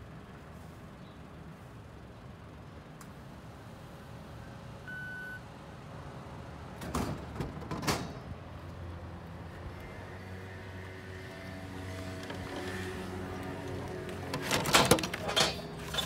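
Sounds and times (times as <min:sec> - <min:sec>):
card reader beep: 0:04.9 - 0:05.4.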